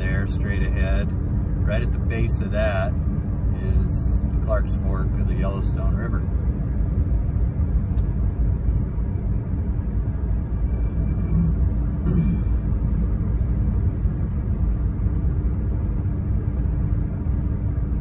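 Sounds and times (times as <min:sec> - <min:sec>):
faint steady hum: 0:00.0 - 0:18.0
road and engine rumble: 0:00.0 - 0:18.0.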